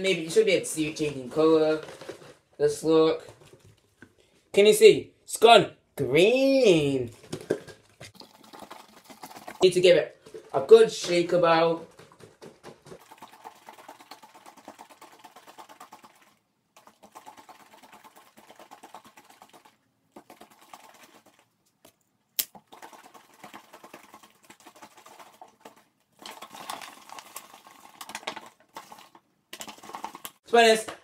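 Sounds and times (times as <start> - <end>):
water sloshing in shaken bottle: 7.0 - 21.6, 22.5 - 30.4.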